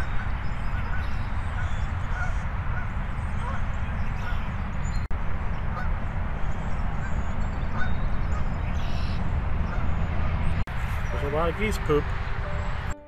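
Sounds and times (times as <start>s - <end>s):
geese honking faintly: 0.0s - 4.6s, 5.6s - 6.0s, 7.0s - 10.4s.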